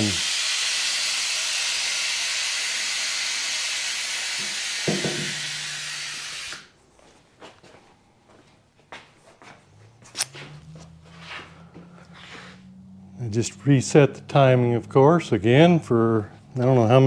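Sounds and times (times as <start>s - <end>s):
low hum: 9.6s - 17.0s.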